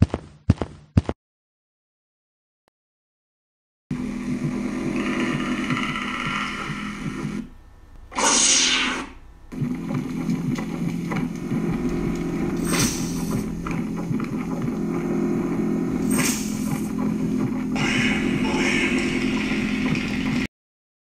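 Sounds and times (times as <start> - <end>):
low electronic hum: 3.9 - 20.5
hissing swells: 8.1 - 9.4
loud noisy burst: 8.1 - 10.0, 17.7 - 20.5.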